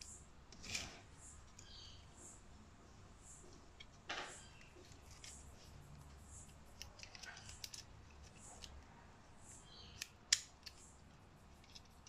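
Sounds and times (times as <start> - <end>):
plastic handling clicks and rubbing: 3.8 - 8.8
sharp plastic clicks: 9.8 - 10.9.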